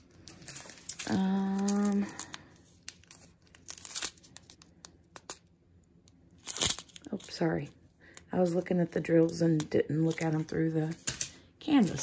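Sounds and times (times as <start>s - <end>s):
plastic bags crinkling: 0.0s - 5.4s, 10.0s - 12.0s.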